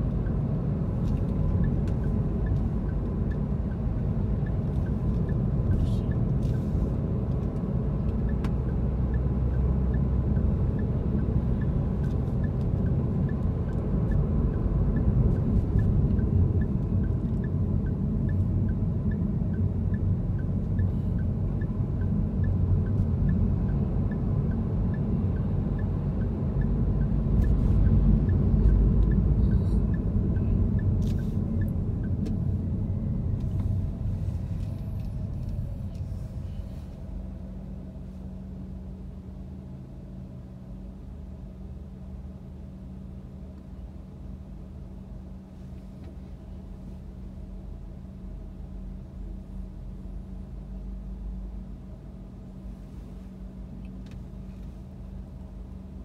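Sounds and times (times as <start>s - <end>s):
faint regular ticking: 0.0s - 6.4s, 7.3s - 36.1s
car engine and tyres rumbling: 0.0s - 56.0s.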